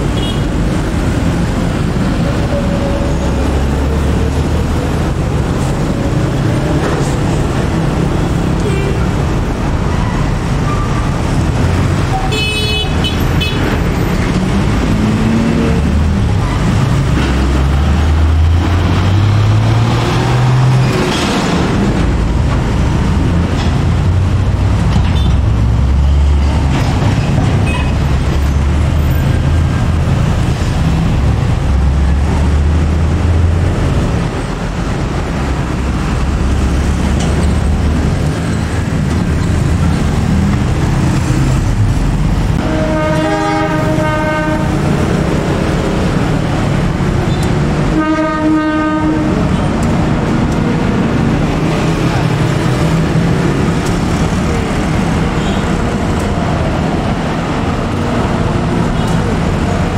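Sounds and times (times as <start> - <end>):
trucks running and pulling away: 0.0 - 59.9
motorcycles passing: 27.6 - 59.9
vehicle horn toots: 42.6 - 44.7, 47.9 - 49.4.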